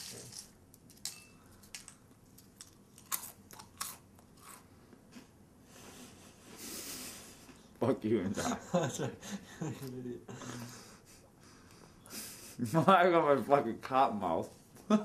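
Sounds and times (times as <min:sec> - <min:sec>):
person chewing crunchy food: 0:02.4 - 0:04.7.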